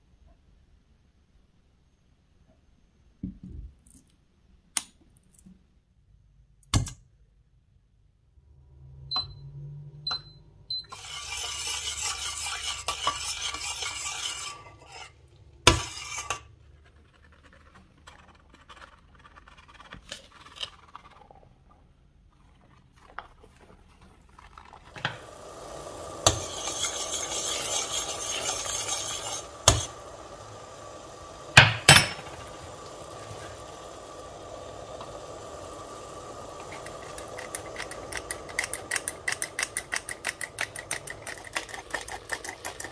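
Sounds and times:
flour sifter rasping: 10.9 - 42.9.

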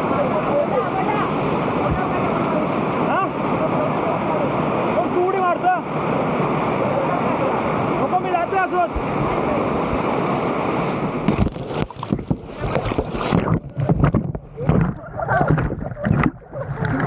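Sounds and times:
water splashing and churning: 0.0 - 17.0
waterfall rushing: 0.0 - 17.0.

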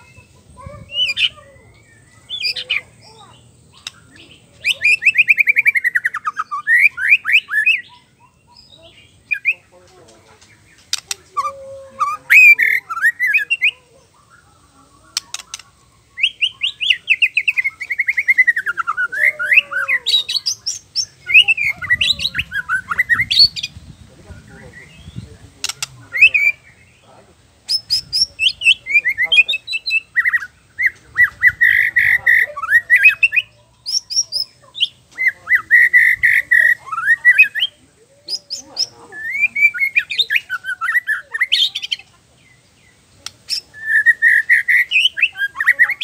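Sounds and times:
rapid bird trills: 0.0 - 9.7, 10.4 - 23.9, 24.5 - 46.0
bird singing varied phrases: 0.0 - 46.0
sharp bird clicks: 3.7 - 6.0, 10.4 - 11.3, 15.1 - 18.9, 25.6 - 26.2, 43.2 - 45.1.

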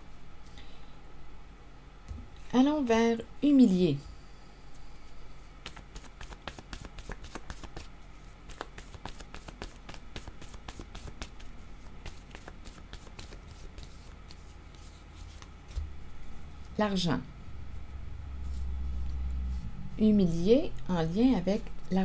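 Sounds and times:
cards being shuffled: 5.6 - 16.0.

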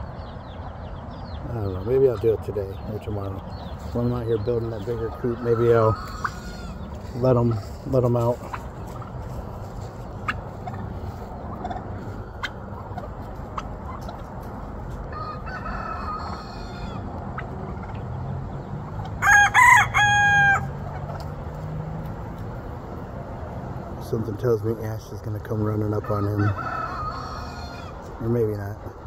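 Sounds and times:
rooster crowing: 5.2 - 6.9, 15.0 - 17.1, 19.2 - 20.8, 26.0 - 28.0.

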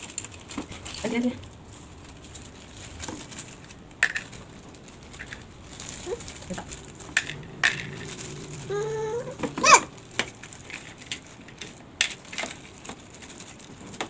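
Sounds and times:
short rising voice sound: 6.0 - 10.6.

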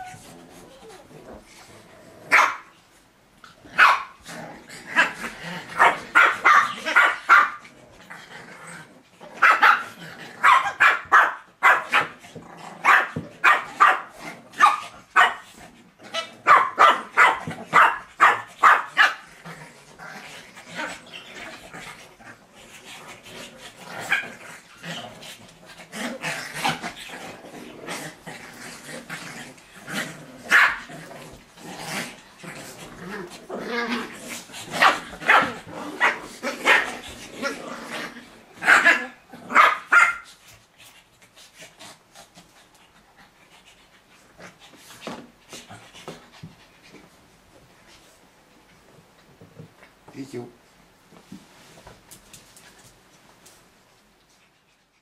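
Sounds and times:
small dogs barking: 2.3 - 2.7, 3.8 - 4.2, 5.8 - 7.6, 9.4 - 12.2, 12.8 - 15.5, 16.2 - 19.3, 30.5 - 30.9, 34.7 - 37.0, 38.6 - 40.3.

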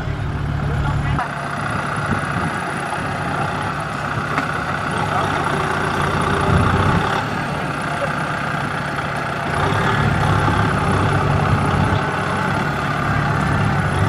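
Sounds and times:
diesel engines running under load: 0.0 - 14.0.

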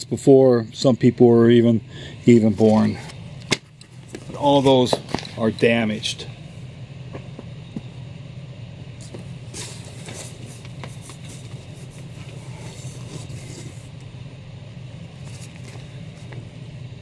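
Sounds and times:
steady low hum: 0.0 - 17.0
paper and cardboard rustling: 9.0 - 13.9, 15.1 - 16.5.

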